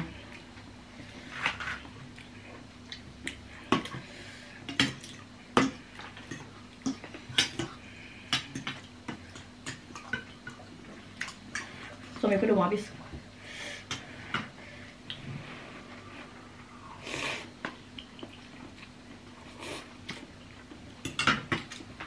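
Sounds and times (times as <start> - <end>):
cutlery clinking against bowls: 21.0 - 21.8.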